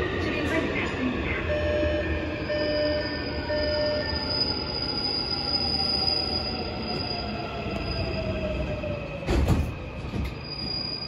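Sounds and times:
train rumble: 0.0s - 4.2s, 6.6s - 10.8s
high train whine: 0.0s - 11.0s.

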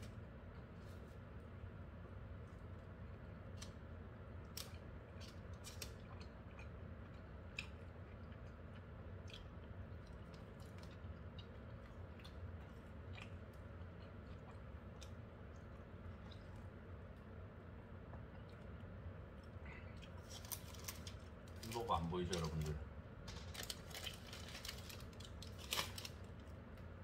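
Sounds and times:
chewing fries: 0.0s - 27.0s
steady low hum: 0.0s - 27.0s.

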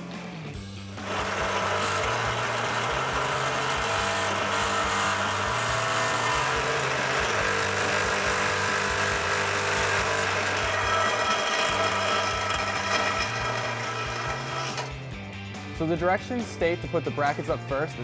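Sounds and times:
cordless drill boring metal: 1.0s - 15.1s.

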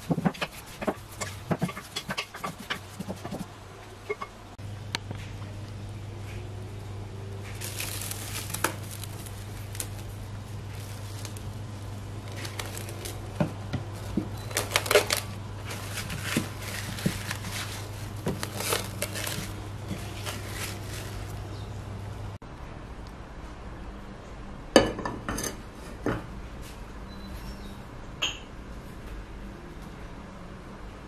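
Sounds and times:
steady low hum: 0.0s - 24.7s
plastic wrap crinkling: 7.4s - 21.6s.

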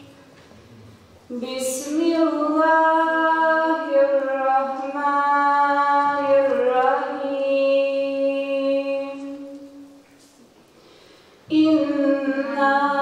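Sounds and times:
choir singing devotional song: 11.5s - 13.0s.

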